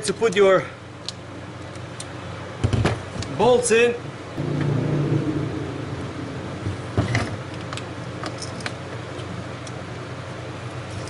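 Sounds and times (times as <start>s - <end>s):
low steady hum: 4.4s - 8.7s.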